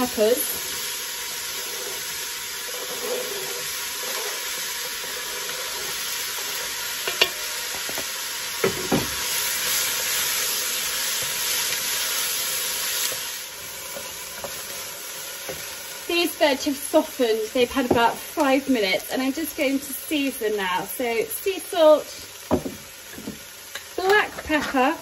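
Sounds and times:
vegetables sizzling in oil: 0.0s - 25.0s
spoon knocking on pot: 22.5s - 23.4s.

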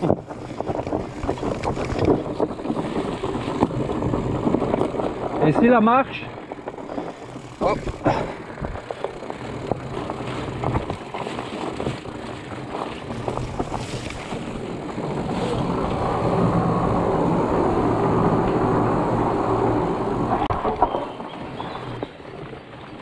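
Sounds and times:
bike rattling over bumps: 0.0s - 23.0s
bike tyres rumbling on dirt: 0.0s - 23.0s.

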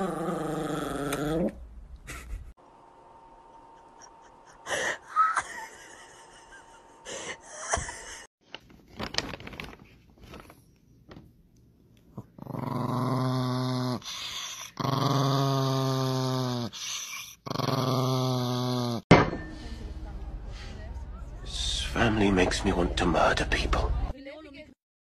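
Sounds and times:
small dog growling: 0.0s - 1.6s, 12.2s - 19.0s.

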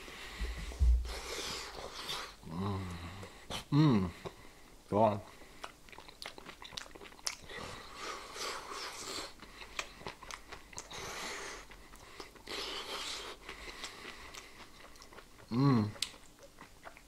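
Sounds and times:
person chewing fried food: 5.4s - 17.0s.

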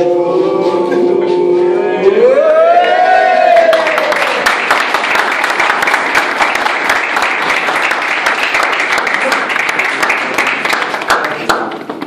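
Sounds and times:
crowd clapping: 3.5s - 12.0s.

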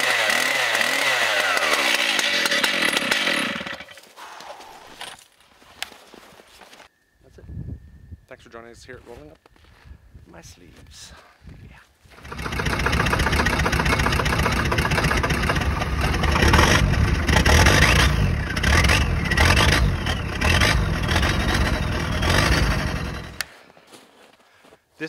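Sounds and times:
engine revving: 0.0s - 3.9s, 12.2s - 23.5s.

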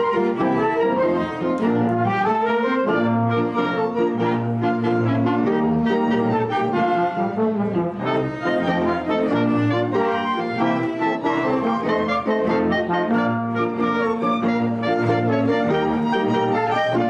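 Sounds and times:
dance orchestra with brass: 0.0s - 17.0s.

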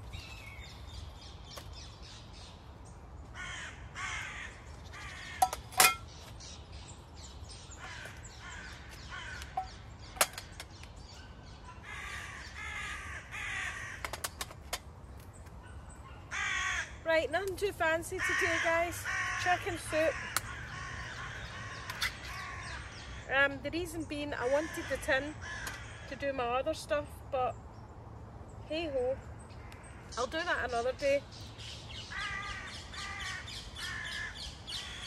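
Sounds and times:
crows cawing: 3.3s - 6.0s, 7.7s - 10.4s, 11.7s - 14.4s, 16.3s - 17.0s, 18.1s - 23.3s, 24.4s - 26.3s, 32.0s - 35.0s.

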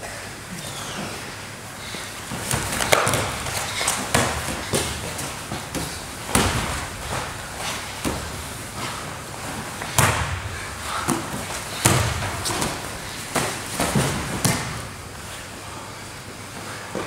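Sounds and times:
rustling and shuffling on mat: 0.8s - 17.0s
bodies thudding on mat: 2.3s - 9.0s, 9.8s - 15.0s.

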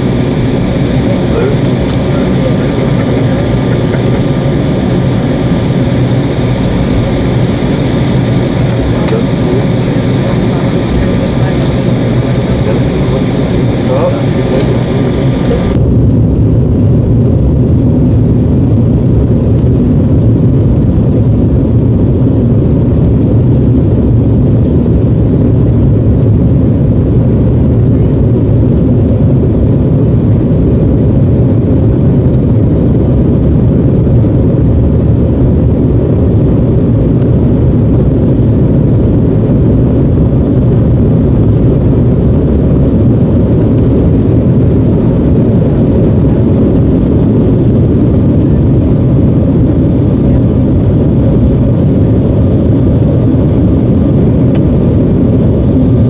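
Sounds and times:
jet engines rumbling: 0.0s - 56.0s.

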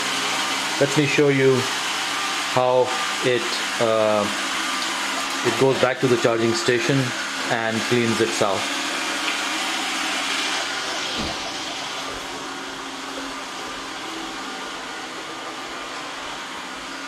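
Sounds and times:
robot vacuum motor whirring: 9.0s - 16.0s.

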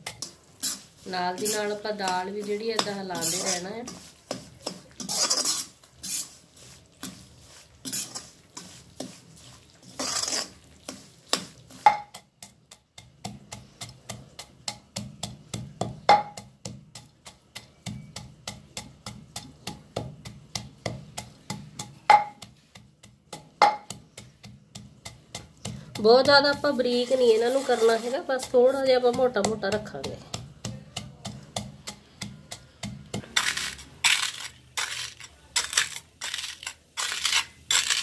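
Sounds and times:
metal spoon scraping in iron pan: 0.0s - 15.1s, 16.4s - 38.0s
wooden pestle pounding nuts: 11.3s - 26.9s, 28.4s - 38.0s.

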